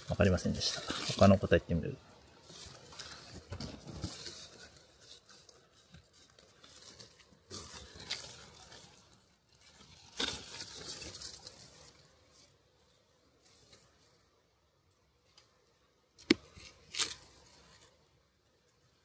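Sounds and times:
hands rustling and crinkling: 0.1 - 14.2.

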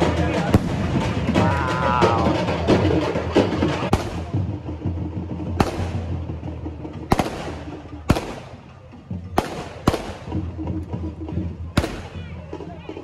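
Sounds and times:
fireworks bangs echoing: 0.0 - 1.4, 3.7 - 4.4, 5.6 - 6.2, 7.1 - 8.6, 9.3 - 10.5, 11.8 - 12.2.

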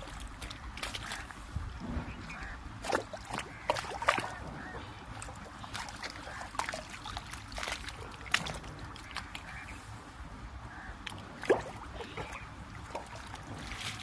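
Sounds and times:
water splashing: 0.0 - 10.0, 10.7 - 14.0
hoe striking wet mud: 5.7 - 9.3, 12.9 - 14.0.

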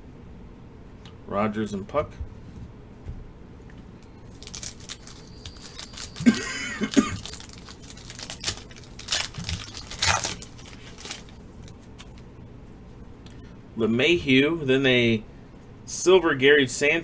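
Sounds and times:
foil wrapper crinkling and tearing: 4.3 - 12.2.

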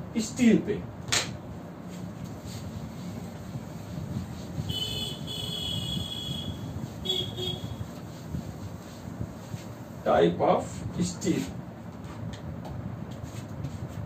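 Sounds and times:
cloth rubbing whiteboard: 1.8 - 10.0, 13.1 - 14.0.

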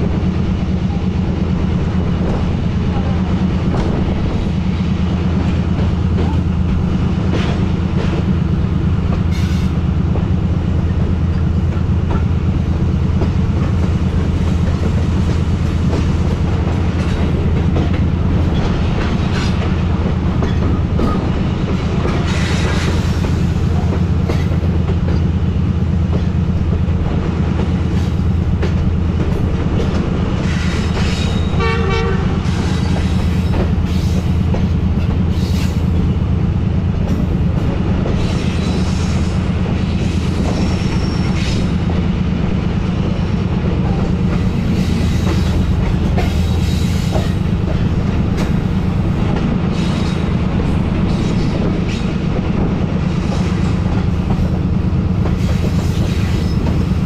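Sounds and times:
train wheels rumbling on rail: 0.0 - 57.0
clicks of wheels on rail: 2.2 - 42.5, 43.1 - 57.0
train horn blast: 31.5 - 32.5.

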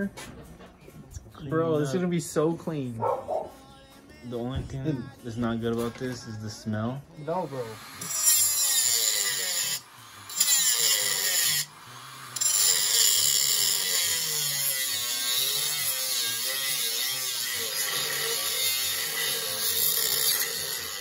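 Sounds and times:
angle grinder cutting steel: 7.2 - 21.0.

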